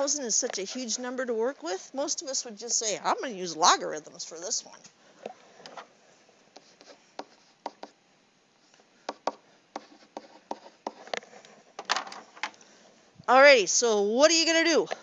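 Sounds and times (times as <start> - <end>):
pen tapping and scratching on tablet: 6.5 - 8.0, 9.0 - 11.5.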